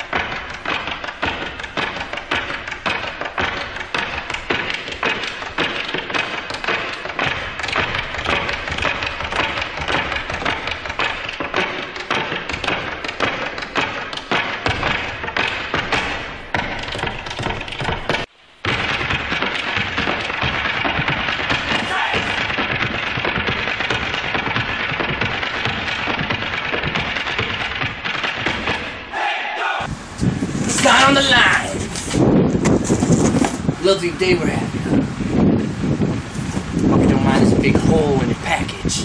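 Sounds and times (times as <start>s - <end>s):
tap-dance taps: 0.0s - 29.0s.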